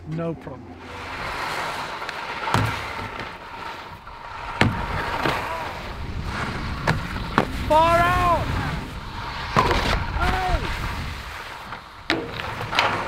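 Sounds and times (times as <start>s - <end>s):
skis scraping over snow: 0.1s - 13.0s
skis knocking on rails: 1.0s - 5.7s, 11.6s - 13.0s.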